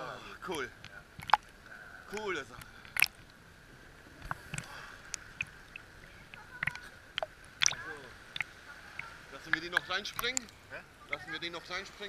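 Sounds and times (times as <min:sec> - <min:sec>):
water sloshing against camera: 0:00.0 - 0:12.0
short splashes and knocks: 0:00.8 - 0:01.5, 0:02.2 - 0:03.3, 0:04.2 - 0:10.5.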